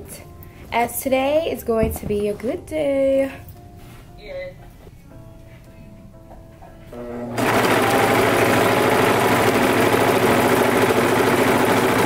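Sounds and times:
sewing machine running: 0:07.4 - 0:12.0.

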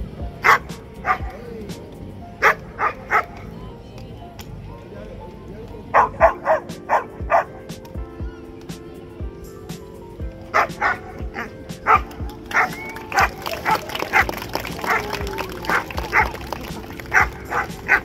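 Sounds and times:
background music with beat: 0:00.0 - 0:18.0
dog barking: 0:00.4 - 0:01.4, 0:02.4 - 0:03.4, 0:05.9 - 0:07.6, 0:10.5 - 0:15.1, 0:15.7 - 0:16.4, 0:17.1 - 0:18.0.

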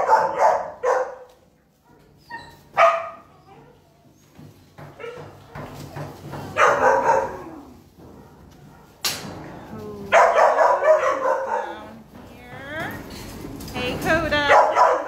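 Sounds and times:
puppies barking: 0:00.0 - 0:04.0, 0:04.9 - 0:09.0, 0:10.1 - 0:12.0, 0:14.3 - 0:15.0.

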